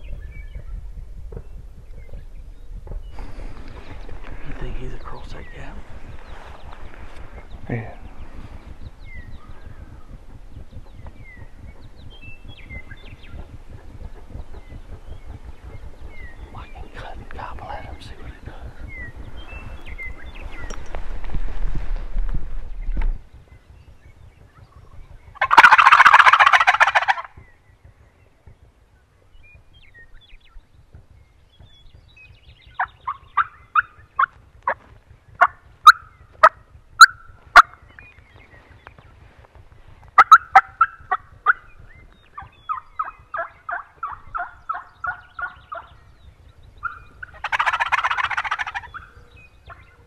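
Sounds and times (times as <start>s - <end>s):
turkey gobble: 24.6s - 27.4s, 32.8s - 34.8s, 35.4s - 37.9s, 40.2s - 41.8s, 42.4s - 46.0s, 46.8s - 49.9s
turkey call yelps: 25.4s - 27.3s, 33.0s - 34.3s, 40.2s - 41.7s, 42.4s - 45.9s, 46.8s - 49.1s.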